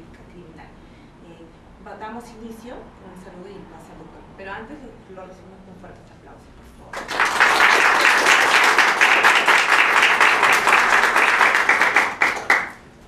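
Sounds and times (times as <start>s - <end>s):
audience applauding: 7.0s - 12.8s.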